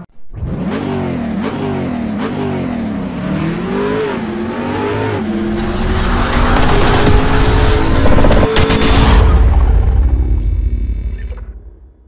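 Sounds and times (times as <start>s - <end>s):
car engine revving: 0.3s - 10.7s
rush of noise: 4.7s - 11.4s.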